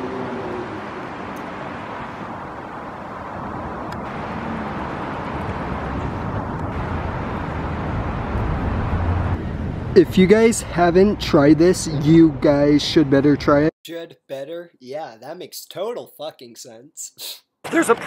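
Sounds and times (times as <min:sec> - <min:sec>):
street traffic: 0:00.0 - 0:13.7
low rumble: 0:02.2 - 0:11.7.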